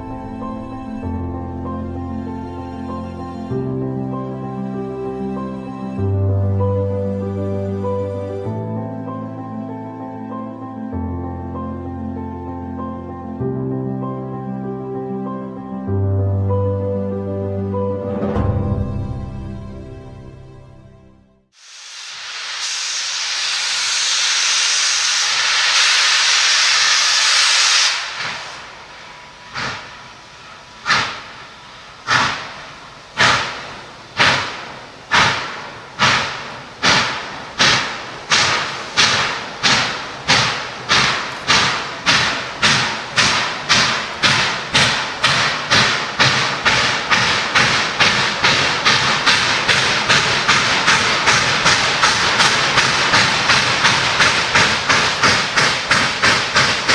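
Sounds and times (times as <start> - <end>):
steam hissing: 21.6 - 56.9
steam locomotive chuffing: 22.2 - 56.9.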